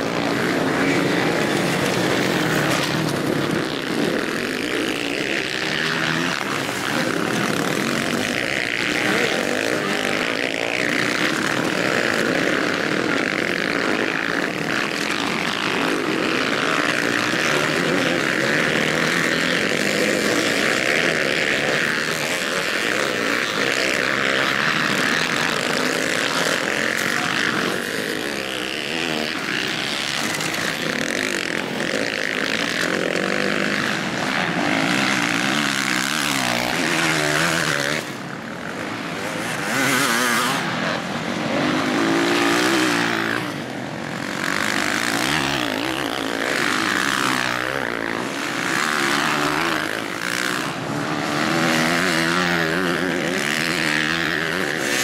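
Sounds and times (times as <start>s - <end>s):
motocross bikes racing: 0.0s - 55.0s.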